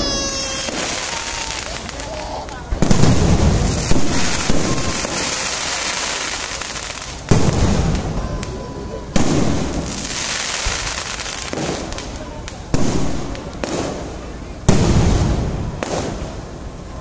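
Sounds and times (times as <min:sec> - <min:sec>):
firework shells bursting: 0:00.0 - 0:08.6.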